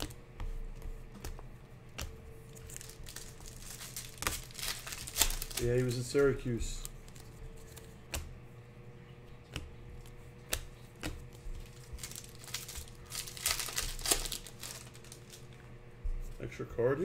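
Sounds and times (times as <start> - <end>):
trading cards clicking and snapping: 1.1 - 8.3, 9.4 - 15.6.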